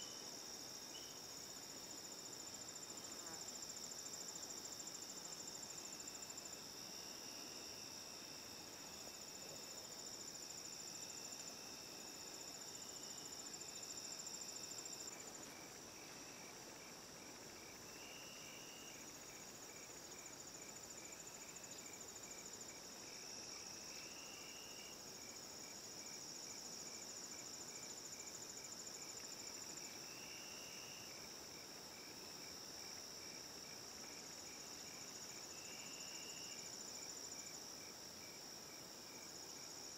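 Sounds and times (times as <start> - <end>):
insects trilling: 0.0 - 39.9
pulsing insect chirp: 0.0 - 39.9
low insect buzzing call: 2.0 - 25.8, 33.6 - 37.6.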